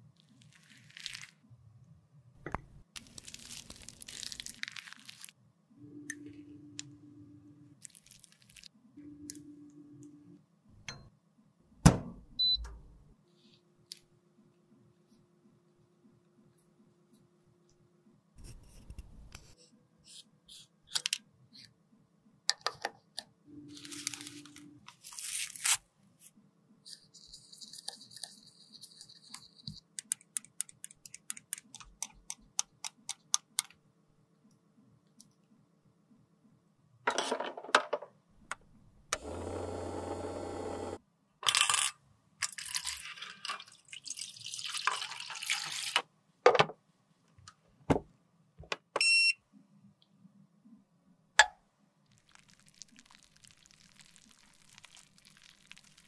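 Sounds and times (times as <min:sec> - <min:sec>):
water poured into metal tray: 0:42.5 - 0:46.0, 0:52.2 - 0:56.0.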